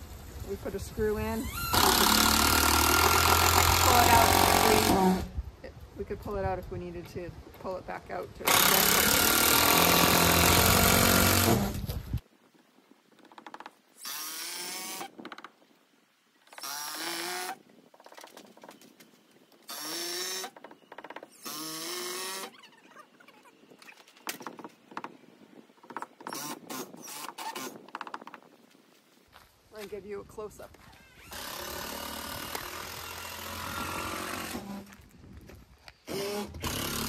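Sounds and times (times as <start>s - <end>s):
power drill running: 1.5s - 5.3s, 8.5s - 11.8s, 36.1s - 37.0s.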